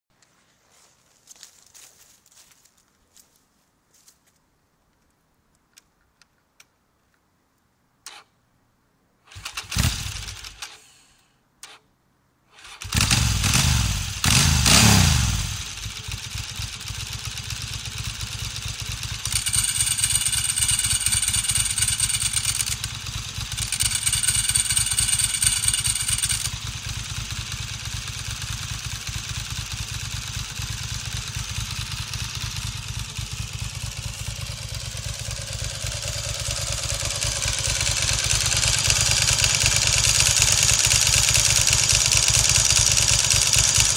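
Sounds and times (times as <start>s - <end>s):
motorcycle engine starting and idling: 8.0s - 8.4s, 9.2s - 11.9s, 12.5s - 43.9s
dry clutch rattling: 15.6s - 43.9s.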